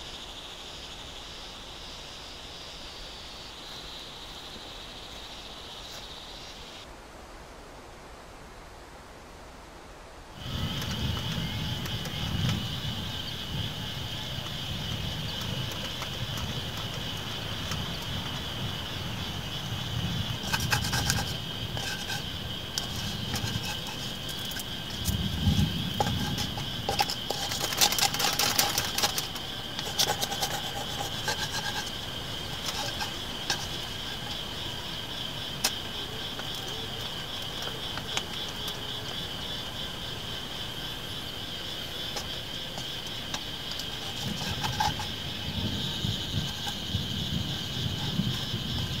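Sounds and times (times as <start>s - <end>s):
high insect drone: 0.0s - 6.9s, 10.3s - 49.0s
spatula scraping metal pan: 20.4s - 34.4s.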